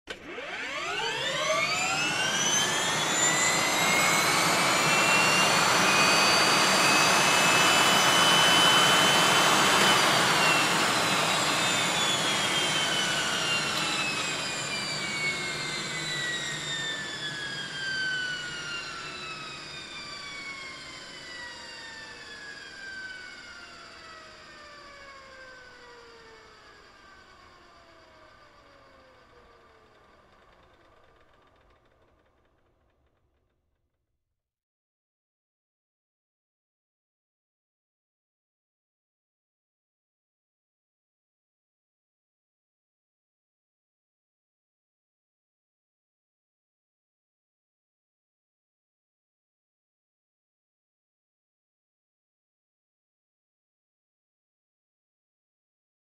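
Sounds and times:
helicopter engines whining: 0:00.3 - 0:27.5.

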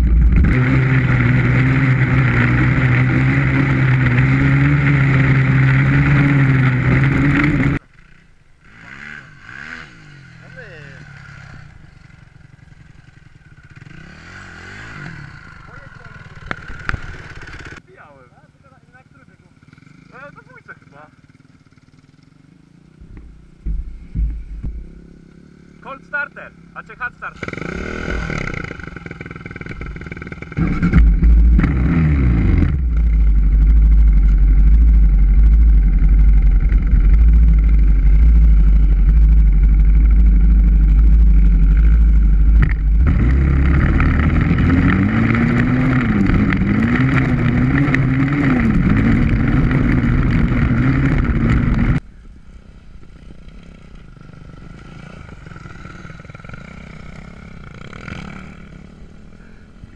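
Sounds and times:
heavy low rumble: 0:00.0 - 0:07.8, 0:23.0 - 0:25.3, 0:28.2 - 0:52.1
dirt bike engines revving: 0:00.0 - 0:59.9.

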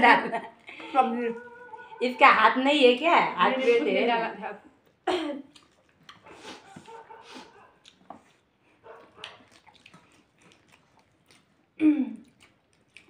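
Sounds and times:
chewing: 0:04.8 - 0:13.0.

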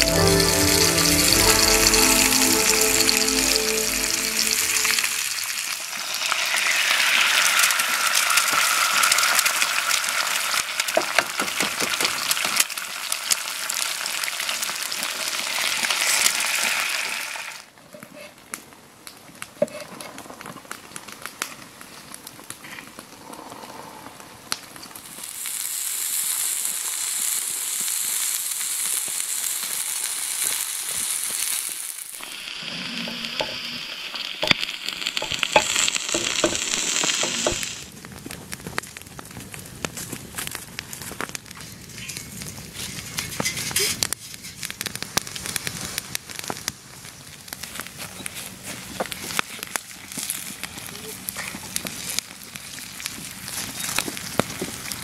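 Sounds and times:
eggs sizzling in oil: 0:00.0 - 0:17.7, 0:25.0 - 0:37.9, 0:47.5 - 0:55.0.

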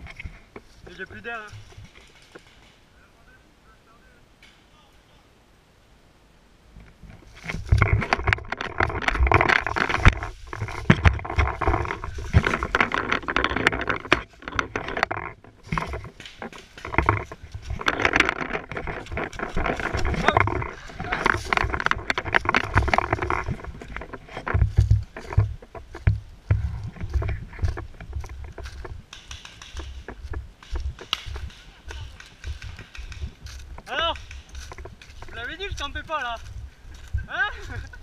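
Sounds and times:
running footsteps through dry leaves: 0:07.2 - 0:14.5, 0:15.6 - 0:38.0.

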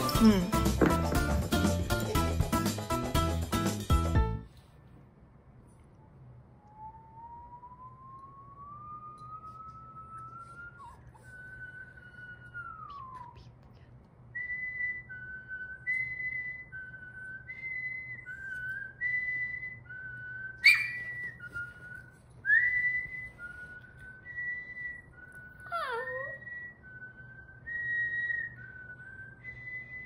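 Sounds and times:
man whistling: 0:06.6 - 0:13.4, 0:14.4 - 0:30.0.

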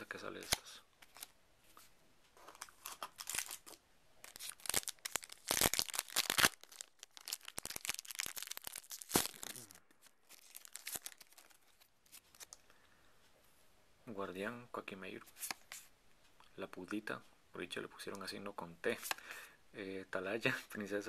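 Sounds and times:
foil wrapper tearing and crinkling: 0:02.6 - 0:11.6.

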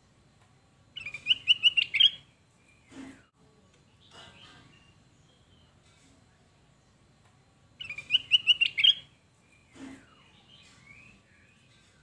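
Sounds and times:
bulbul calling: 0:01.0 - 0:02.3, 0:07.8 - 0:09.1.

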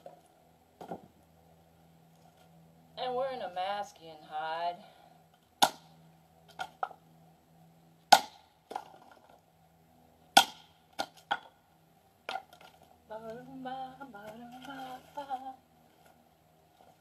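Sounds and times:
axe chopping kindling: 0:05.6 - 0:05.9, 0:08.1 - 0:09.2, 0:10.3 - 0:11.6.

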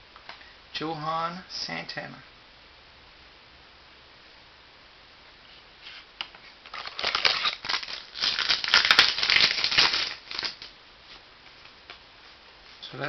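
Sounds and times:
wrapping and cards rustling: 0:05.9 - 0:11.8.

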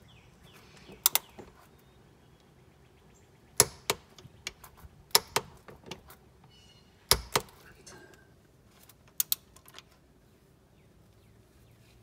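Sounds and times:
socket wrench clicking: 0:09.1 - 0:09.8.

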